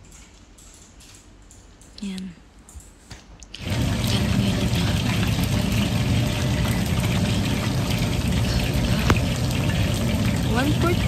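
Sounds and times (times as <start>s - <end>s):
chicken deep-frying in oil: 3.6s - 11.0s.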